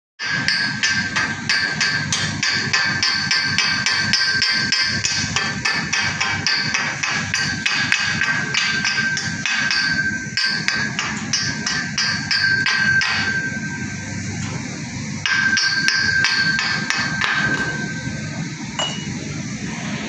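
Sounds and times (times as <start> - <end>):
chipping hammer striking steel pipe: 0.2 - 13.4, 15.2 - 17.7
pipe ringing: 6.0 - 14.0, 15.2 - 19.2.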